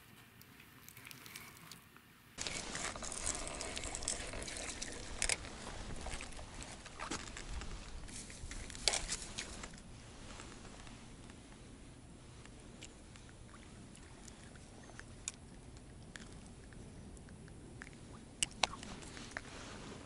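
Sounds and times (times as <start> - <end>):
handling clicks and rustles: 2.4 - 11.6.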